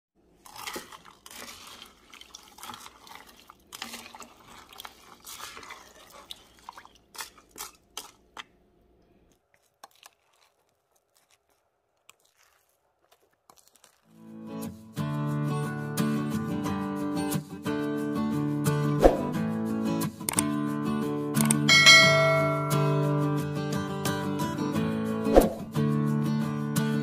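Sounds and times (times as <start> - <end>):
guitar music: 14.3 - 27.0.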